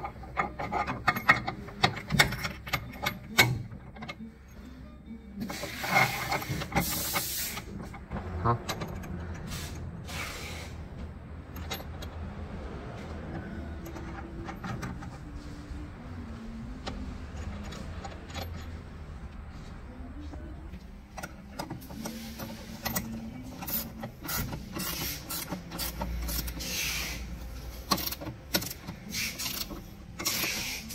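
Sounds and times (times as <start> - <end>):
steel bolt scraping through metal: 5.4 - 10.8, 21.2 - 30.9
small metallic clicks: 27.8 - 30.9.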